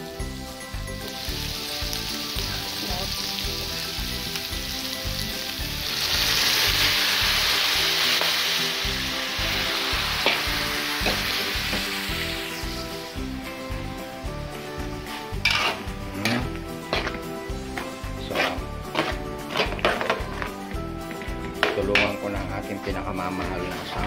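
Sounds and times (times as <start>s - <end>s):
food sizzling in a wok: 0.0s - 24.0s
broth pouring into a wok: 0.9s - 16.4s.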